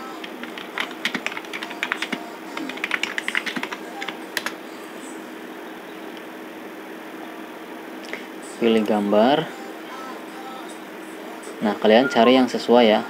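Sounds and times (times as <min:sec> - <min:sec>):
keyboard typing: 0:00.0 - 0:04.6
faint steady hum: 0:00.0 - 0:13.0.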